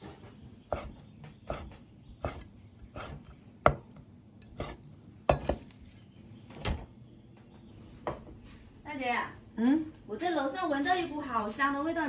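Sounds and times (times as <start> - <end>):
cleaver chopping on board: 3.0 - 4.0.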